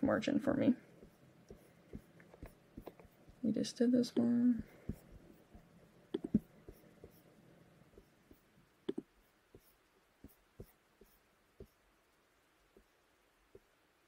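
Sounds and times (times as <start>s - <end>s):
computer mouse clicks: 6.1s - 7.2s, 8.8s - 9.1s.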